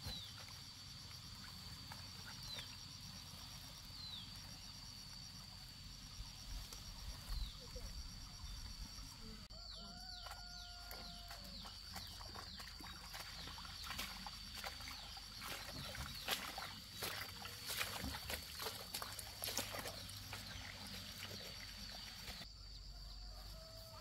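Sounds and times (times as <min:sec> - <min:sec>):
footsteps through plants: 0:10.1 - 0:22.4.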